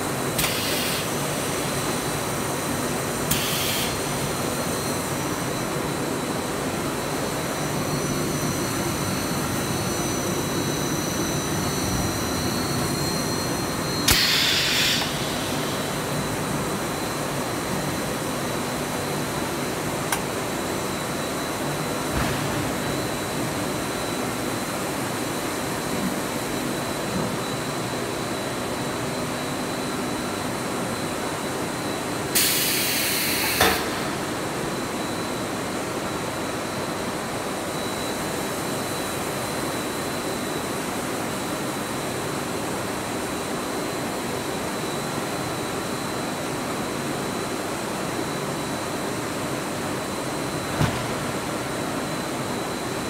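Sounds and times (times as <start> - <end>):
hiss: 0.4 - 1.6, 3.3 - 4.1, 14.1 - 15.9, 32.4 - 33.9.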